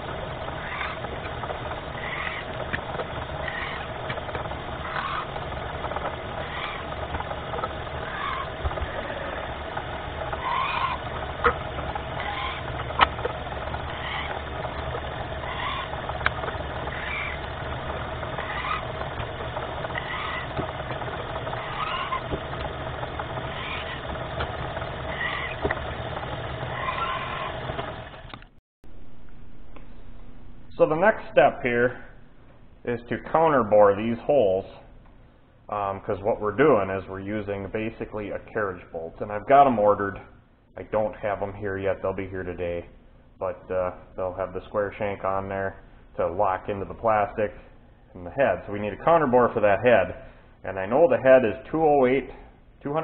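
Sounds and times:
drill press drilling plastic: 0.0s - 28.6s
sharp clicks: 0.1s - 28.6s.

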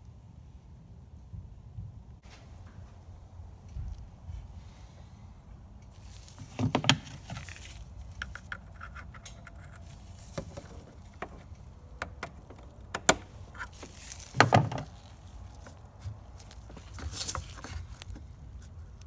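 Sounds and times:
handling noise: 5.9s - 19.0s.

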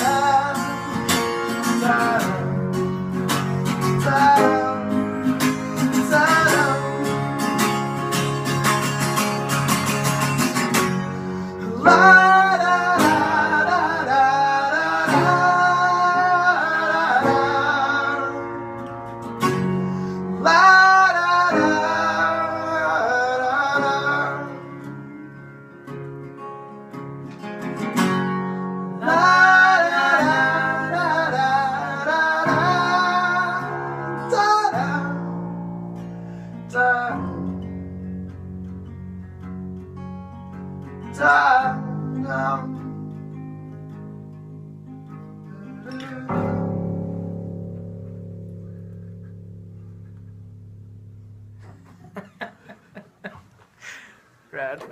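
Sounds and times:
man singing: 0.0s - 7.8s, 11.6s - 18.8s, 20.3s - 25.6s, 29.0s - 35.6s, 36.6s - 37.8s, 41.0s - 43.0s, 45.5s - 46.8s
strummed guitars: 0.0s - 54.9s.

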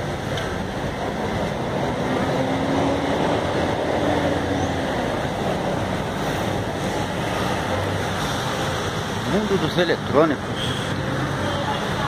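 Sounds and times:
traffic rumble: 0.0s - 12.0s.

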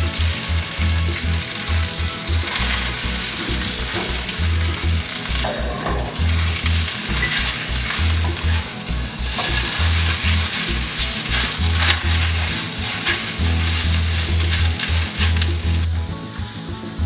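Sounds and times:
noodles sizzling in oil: 0.0s - 17.0s
spatula scraping a pan: 5.3s - 15.9s.

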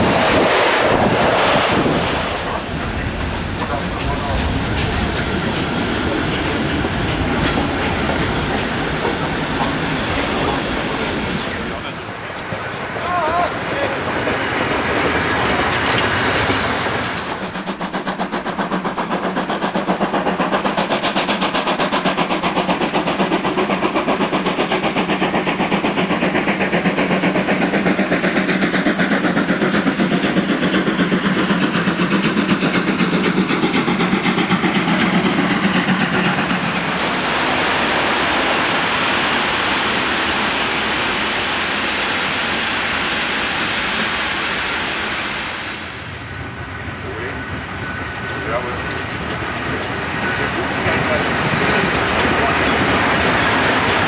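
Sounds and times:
steam blowing from cylinders: 0.0s - 54.0s
steam hissing: 0.0s - 54.0s
steam locomotive exhaust chuffs: 0.0s - 54.0s
coaches rolling and clattering: 2.8s - 13.1s.

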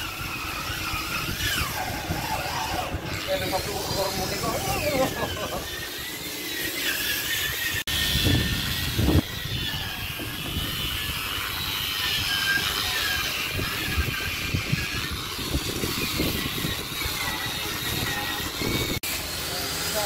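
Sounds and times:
electric grinder whining on steel: 0.0s - 20.0s.

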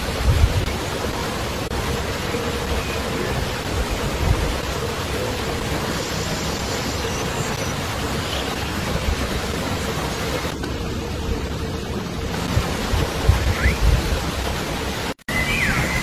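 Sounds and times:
steady rushing noise: 0.0s - 16.0s.

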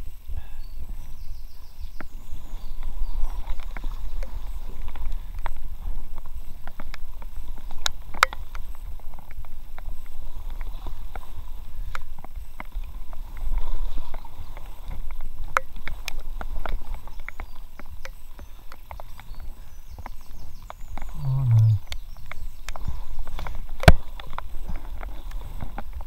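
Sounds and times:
low rumble: 21.1s - 21.8s.

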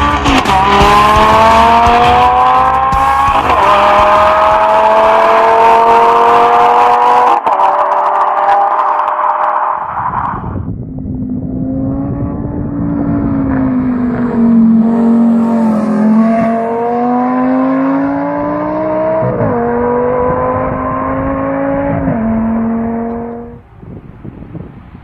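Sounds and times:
car engine accelerating hard: 0.0s - 23.6s.

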